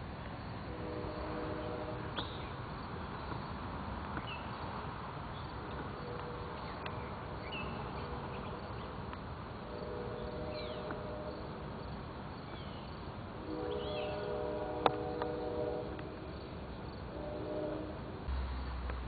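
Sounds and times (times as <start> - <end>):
background hiss: 0.0 - 19.0
distant train horn: 0.6 - 2.5, 5.7 - 6.9, 7.5 - 8.9, 9.6 - 11.7, 13.4 - 18.4
bird chirps: 13.6 - 14.3.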